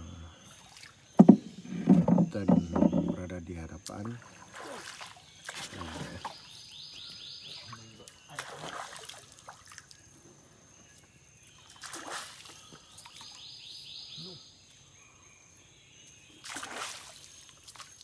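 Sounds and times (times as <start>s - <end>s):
water splashing and trickling: 0.5s - 6.6s, 7.5s - 13.4s, 16.3s - 18.0s.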